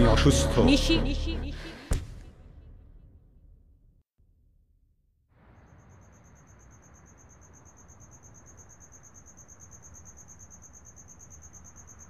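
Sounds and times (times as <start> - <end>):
cricket chirping: 5.4 - 12.0.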